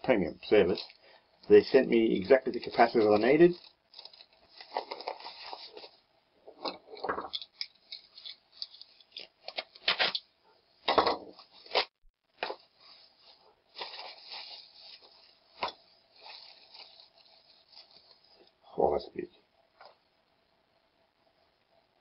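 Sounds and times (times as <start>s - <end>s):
plastic and paper crinkling: 0.1s - 6.0s, 7.3s - 10.3s, 11.3s - 18.6s.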